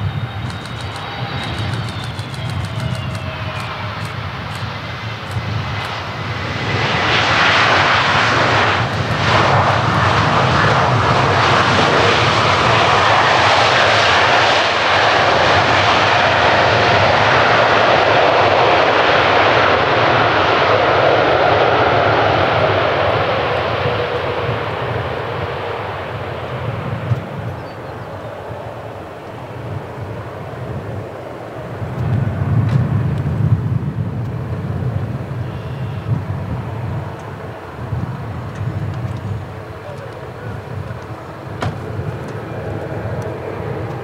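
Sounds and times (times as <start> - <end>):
jet engine reverse thrust roar: 0.0 - 44.0.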